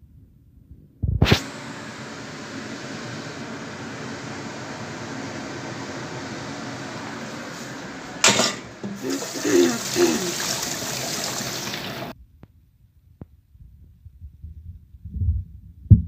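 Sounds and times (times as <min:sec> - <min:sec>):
steady background hum: 0:01.3 - 0:12.1
tap water gushing into steel sink: 0:08.2 - 0:12.1.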